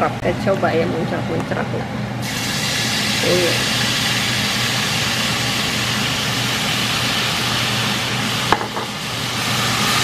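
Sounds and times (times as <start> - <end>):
food sizzling in oil: 2.2 - 10.0.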